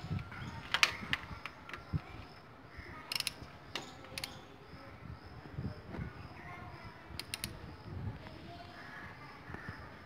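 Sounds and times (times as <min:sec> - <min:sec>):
ratchet wrench clicking: 0:03.1 - 0:04.4, 0:07.2 - 0:07.6.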